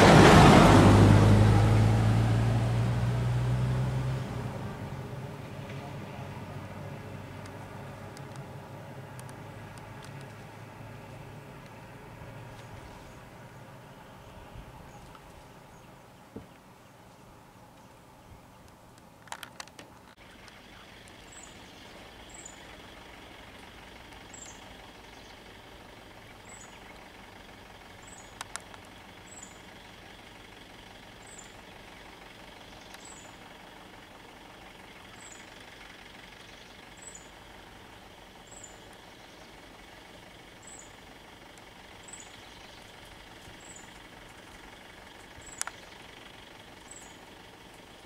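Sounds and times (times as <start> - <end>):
vehicle engines idling: 0.0 - 48.0
sharp clicks: 9.1 - 10.4, 28.3 - 29.0, 43.5 - 45.9.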